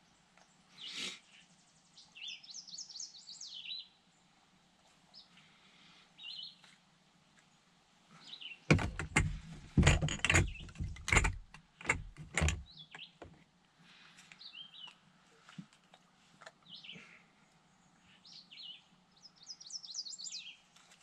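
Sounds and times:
small birds chirping: 0.0s - 4.2s, 6.2s - 6.7s, 10.4s - 11.6s, 12.2s - 13.3s, 14.2s - 15.1s, 16.6s - 20.7s
loud irregular knocks: 8.7s - 13.3s.

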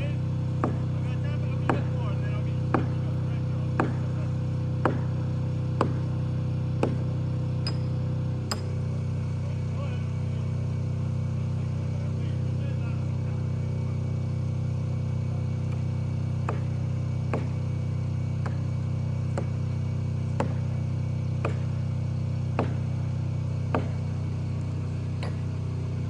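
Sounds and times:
engine droning: 0.0s - 26.0s
sharp knocks on tree trunk: 0.6s - 0.8s, 2.7s - 3.0s, 3.8s - 4.1s, 4.8s - 5.1s, 5.8s - 6.0s, 6.8s - 7.0s, 16.4s - 16.7s, 17.3s - 17.6s, 20.4s - 20.6s, 21.4s - 21.8s, 22.6s - 22.8s, 23.7s - 24.0s.

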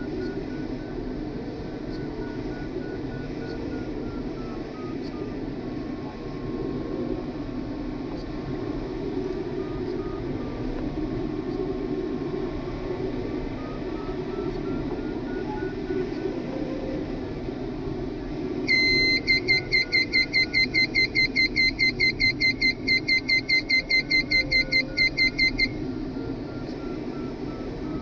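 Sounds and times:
air rushing around canopy: 0.0s - 19.6s
faint beeping variometer tone: 0.0s - 28.0s
loud fast warning beeps: 18.7s - 25.8s.

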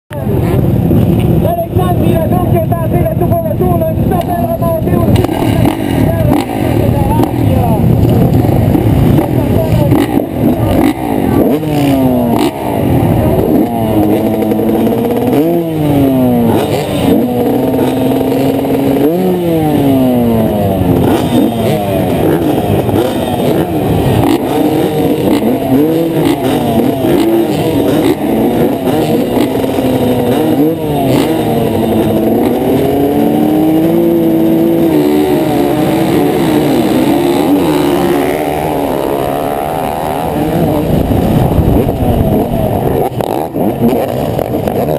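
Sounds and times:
motocross bike engines revving: 0.1s - 44.9s.

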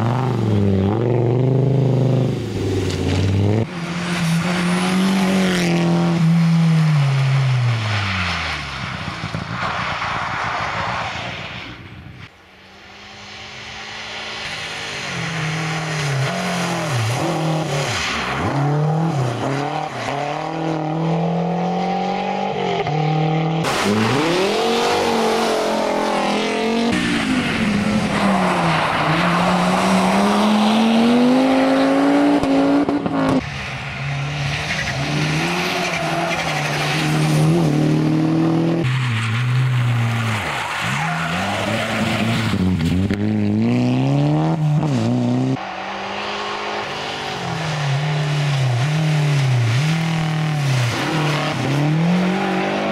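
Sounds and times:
rally car engines revving past: 13.2s - 52.9s.

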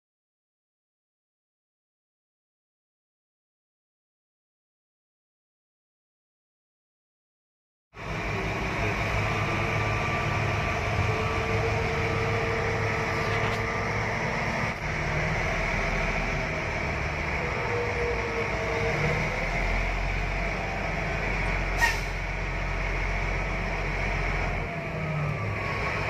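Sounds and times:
truck diesel engine hum in cab: 8.0s - 26.0s.

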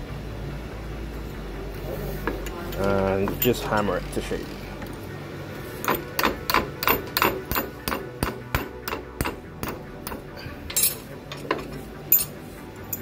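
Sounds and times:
hammer striking metal rod: 5.8s - 12.3s
metal knocks and clinks: 5.8s - 13.0s.

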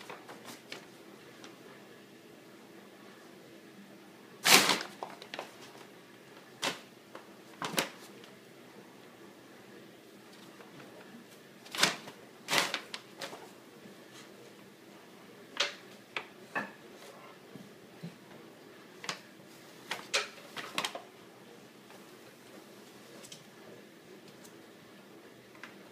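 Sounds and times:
paper bag crinkling: 4.4s - 6.9s, 7.5s - 8.2s, 10.4s - 13.5s.

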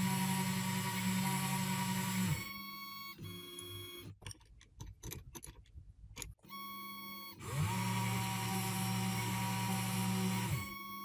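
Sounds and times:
router spindle whine: 0.0s - 4.0s, 6.5s - 11.0s.

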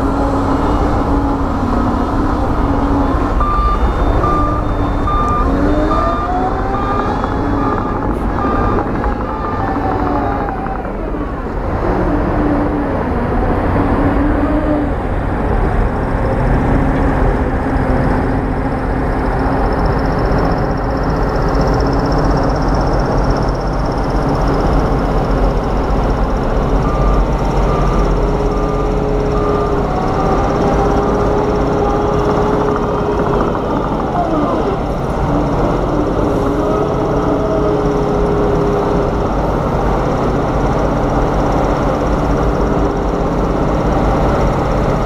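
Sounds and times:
heavy diesel engines running: 0.0s - 45.0s
faint high beeps: 3.0s - 9.9s.

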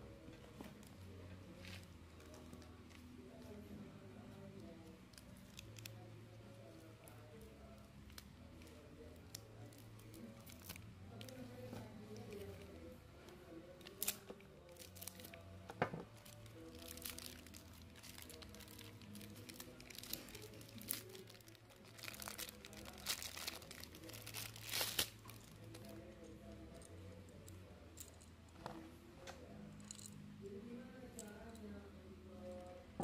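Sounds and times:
quiet background music: 0.0s - 33.0s
plastic packaging crinkling and tearing: 9.3s - 12.7s, 13.8s - 15.5s, 16.1s - 25.9s.

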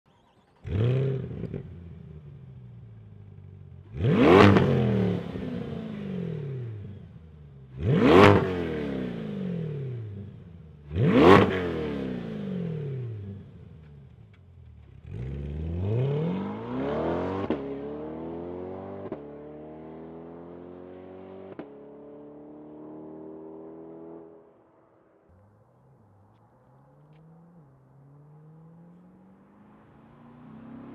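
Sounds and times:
sports car engine revving: 0.6s - 14.0s, 14.8s - 24.4s
car accelerating and shifting gears: 0.6s - 30.9s.

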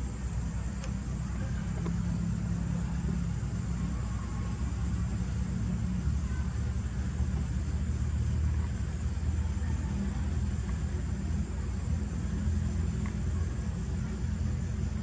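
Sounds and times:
faint high whine: 0.0s - 15.0s
low outdoor rumble: 0.0s - 15.0s
faint ticks: 12.9s - 13.2s.

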